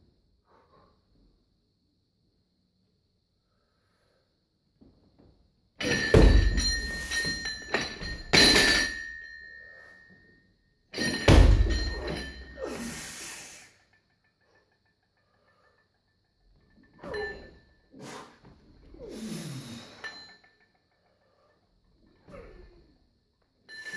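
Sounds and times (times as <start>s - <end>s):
barbell dropping with heavy thuds: 5.8s - 9.1s, 11.0s - 12.6s
plates and bar rattling: 5.8s - 9.2s, 11.0s - 12.8s
metallic ring: 5.8s - 18.4s, 19.3s - 23.0s, 23.6s - 23.9s.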